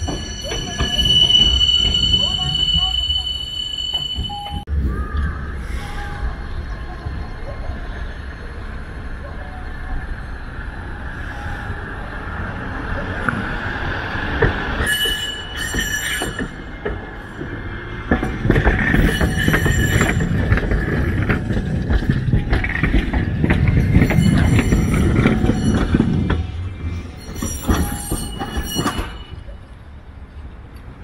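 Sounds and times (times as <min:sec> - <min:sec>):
high wheel squealing: 0:00.0 - 0:04.7, 0:14.1 - 0:29.6
tram wheels rumbling: 0:00.0 - 0:31.0.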